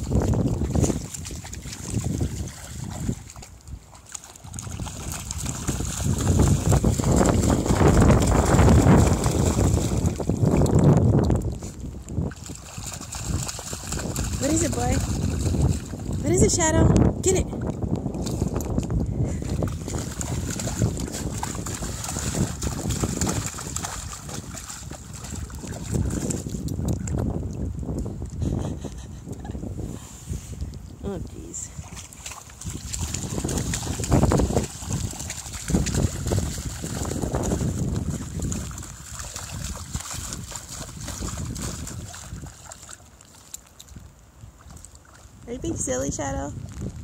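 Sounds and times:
dog splashing in a puddle: 0:00.0 - 0:27.5, 0:31.6 - 0:47.0.

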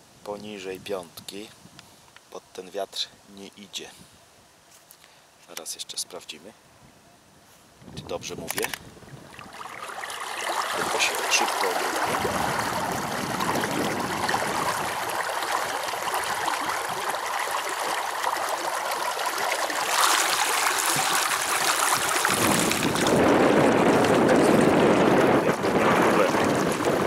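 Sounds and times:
water rushing against a pontoon: 0:09.2 - 0:27.0.

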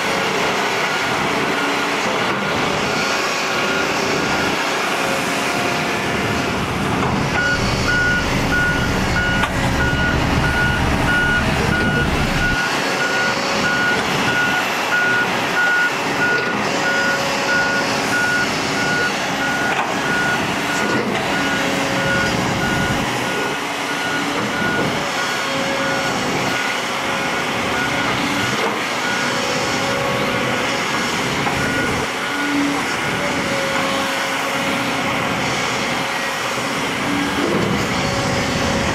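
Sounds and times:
diesel engines running: 0:00.0 - 0:38.9
reversing alarm beeping: 0:00.4 - 0:04.9, 0:07.3 - 0:30.0, 0:31.0 - 0:33.7
deep engine rumble: 0:05.1 - 0:12.6.

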